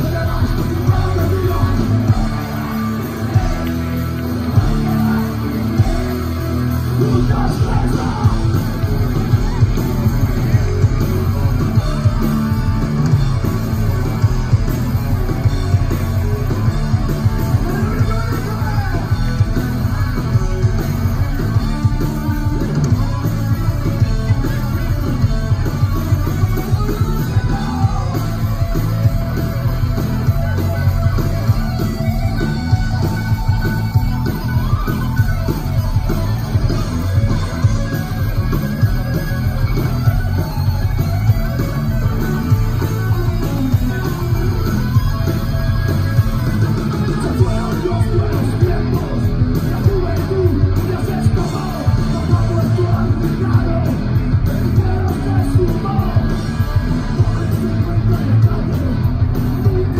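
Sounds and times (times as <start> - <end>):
lead vocal singing: 0.0 - 9.0, 27.0 - 29.2, 47.0 - 59.9
live rock band playing: 0.0 - 59.9.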